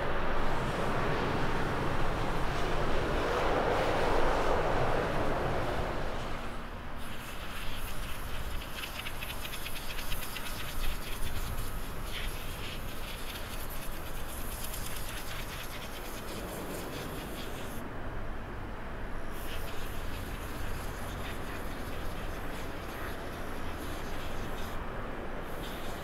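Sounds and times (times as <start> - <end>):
distant jet engine rumble: 0.0 - 26.0
steady high hiss: 6.4 - 17.9, 19.2 - 26.0.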